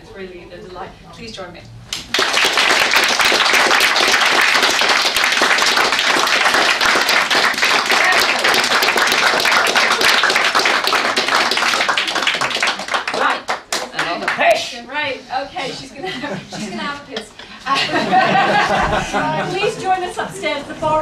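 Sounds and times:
audience applauding: 2.0 - 14.5.

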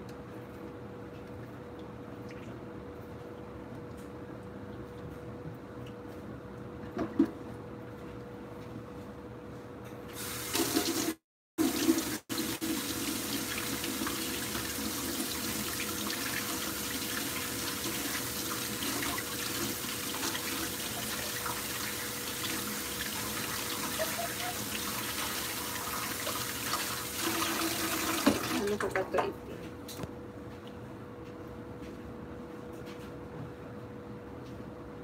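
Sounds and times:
tap running into sink: 24.8 - 28.6.

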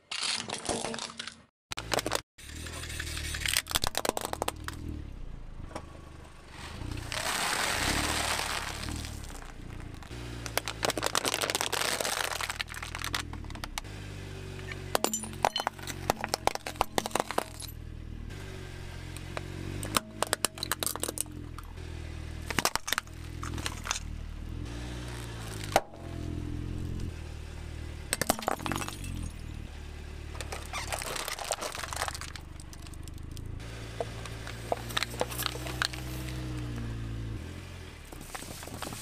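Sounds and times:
tyre crushing plastic objects: 0.0 - 2.2, 3.5 - 4.8, 7.0 - 13.8, 15.0 - 17.7, 19.8 - 21.6, 22.5 - 24.1, 25.2 - 26.0, 28.1 - 29.4, 30.4 - 33.4, 34.0 - 36.8.

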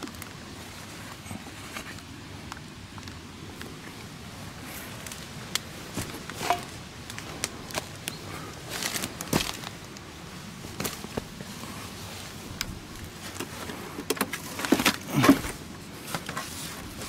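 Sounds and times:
twigs cracking: 4.6 - 11.7
footsteps crunching through dry leaves: 8.6 - 9.9.

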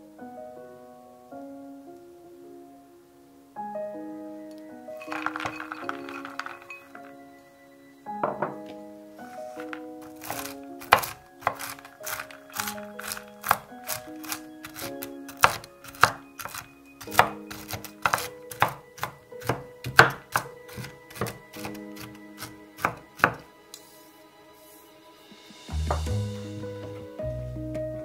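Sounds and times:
soft background music: 0.0 - 28.0
knife chopping nuts: 10.0 - 23.4.

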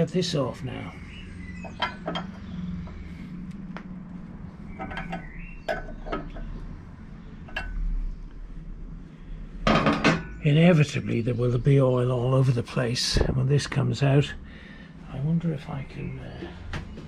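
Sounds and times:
spanner clinking on metal nut: 4.7 - 6.5.

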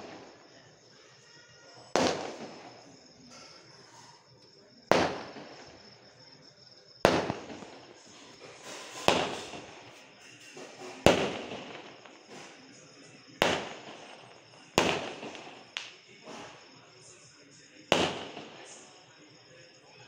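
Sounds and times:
firework bangs echoing: 0.0 - 0.6, 1.9 - 4.1, 4.9 - 6.2, 7.0 - 16.8, 17.7 - 19.0.

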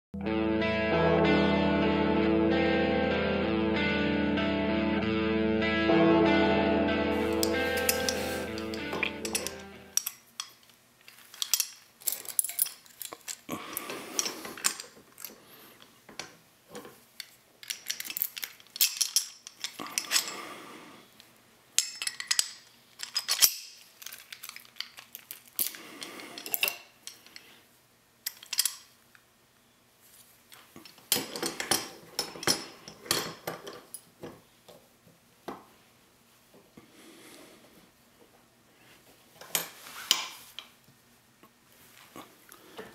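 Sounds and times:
padlock clinking in vise: 7.4 - 10.5.

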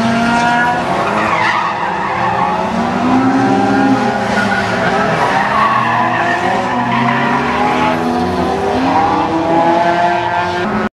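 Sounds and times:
car engine revving: 0.0 - 10.9.

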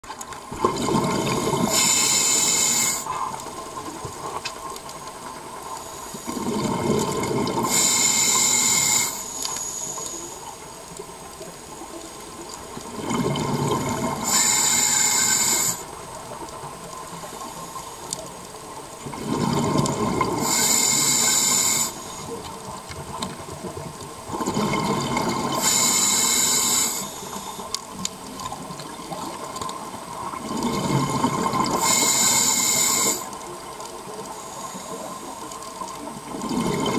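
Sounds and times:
bubbles hissing: 0.5 - 4.4, 5.4 - 10.5, 12.8 - 16.4, 19.0 - 22.8, 24.2 - 33.4, 36.1 - 36.9
diver breathing through regulator: 1.3 - 3.2, 5.8 - 10.4, 13.8 - 15.9, 20.2 - 22.4, 25.5 - 27.8, 31.0 - 33.4.

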